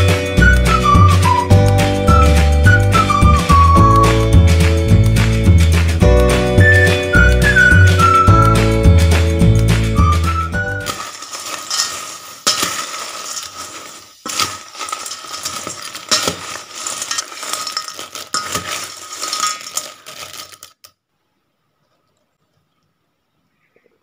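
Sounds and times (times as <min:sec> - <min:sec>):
background music: 0:00.0 - 0:11.0
crackers clattering: 0:07.4 - 0:21.0
metal spoon scraping steel bowl: 0:10.9 - 0:20.7.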